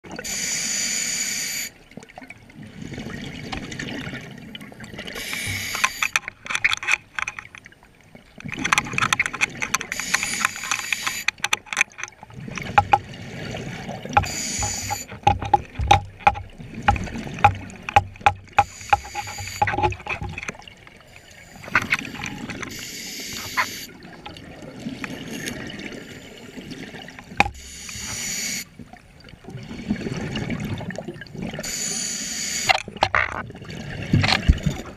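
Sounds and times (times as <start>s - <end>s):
regulator inhaling hiss: 0.3s - 1.7s, 5.2s - 6.1s, 14.2s - 15.1s, 22.7s - 23.9s, 27.6s - 28.7s, 31.6s - 32.7s
scuba regulator exhale bubbling: 5.0s - 6.1s, 12.3s - 17.8s.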